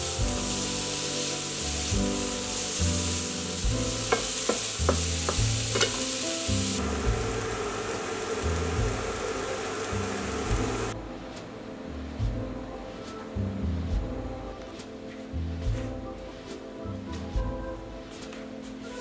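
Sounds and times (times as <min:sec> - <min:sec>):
jazz with walking bass: 0:00.0 - 0:07.5, 0:08.4 - 0:19.0
bacon and onion sizzling: 0:00.0 - 0:11.0
spatula scraping pan: 0:04.0 - 0:06.1.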